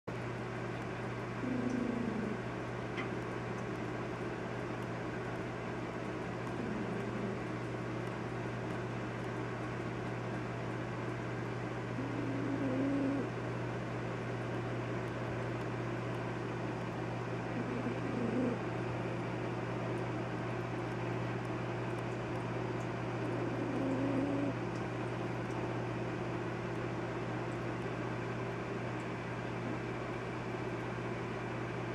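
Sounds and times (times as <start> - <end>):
cat purring: 1.4 - 2.4, 6.5 - 7.4, 12.0 - 13.3, 17.5 - 18.6, 23.2 - 24.6.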